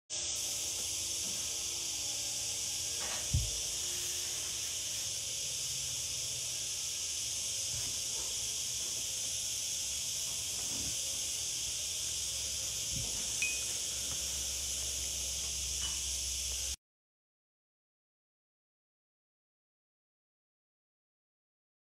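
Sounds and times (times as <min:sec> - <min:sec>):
high-pitched hiss: 0:00.1 - 0:16.8.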